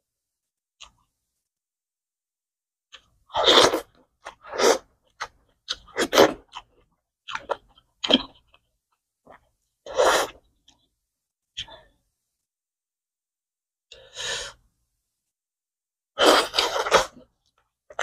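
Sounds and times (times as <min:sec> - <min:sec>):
person chewing and crunching food: 0:02.9 - 0:08.7, 0:16.2 - 0:18.0.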